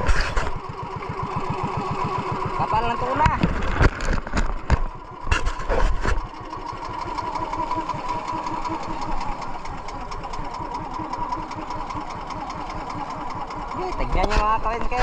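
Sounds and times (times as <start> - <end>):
boat engine running: 0.0 - 15.0
steady whine: 0.0 - 15.0.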